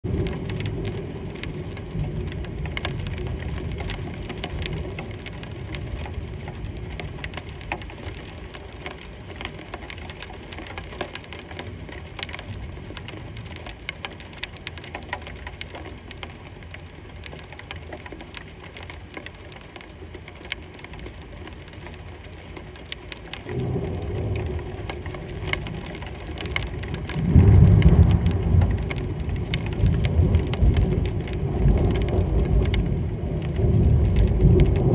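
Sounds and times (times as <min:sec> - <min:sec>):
thunder rumbling: 0:00.0 - 0:07.6, 0:23.4 - 0:34.9
rain falling steadily: 0:00.0 - 0:34.9.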